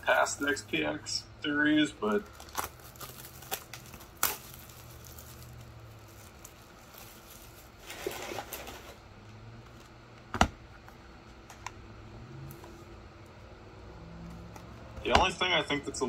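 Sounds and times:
packaging crinkling: 0:02.0 - 0:09.0.

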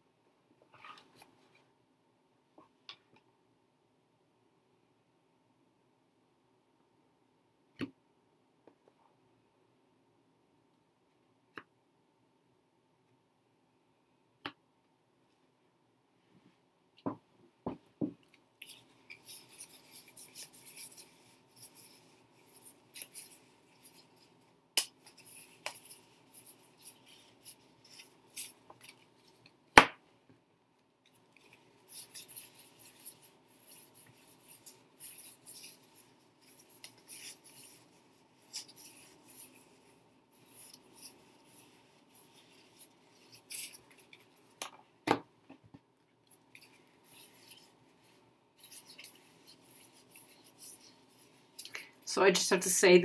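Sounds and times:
cards shuffling and rustling: 0:18.6 - 0:29.5, 0:31.4 - 0:44.7, 0:48.6 - 0:51.9.

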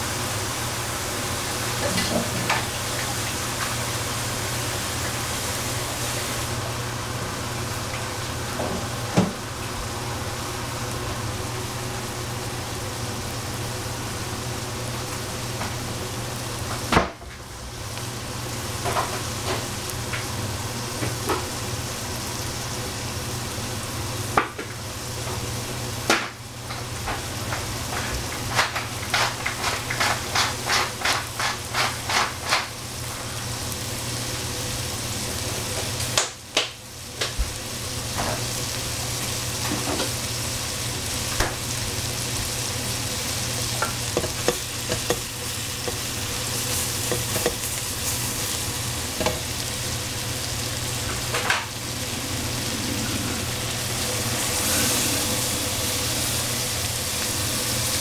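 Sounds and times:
food sizzling in a pan: 0:00.0 - 0:58.0
utensil knocking against pan: 0:44.2 - 0:45.3.

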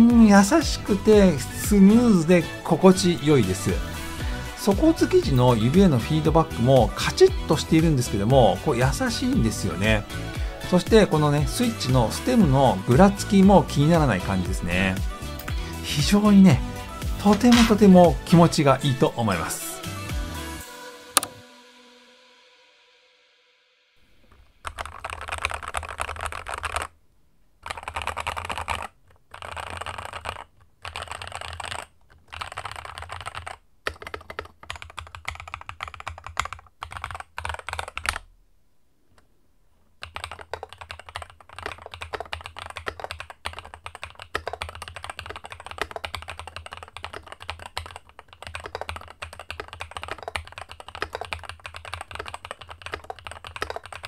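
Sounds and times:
typing on mechanical keyboard: 0:17.2 - 0:18.5, 0:24.6 - 0:26.9, 0:27.6 - 0:38.3, 0:40.0 - 0:54.0.

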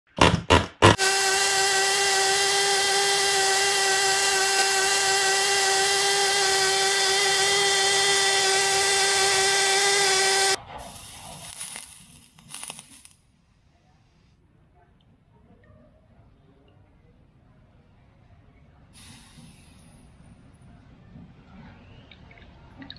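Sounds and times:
small motor whining: 0:00.8 - 0:10.6.

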